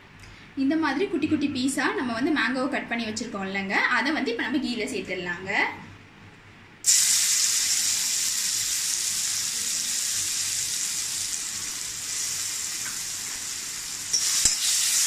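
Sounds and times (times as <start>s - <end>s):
food sizzling in hot fat: 6.8s - 15.0s.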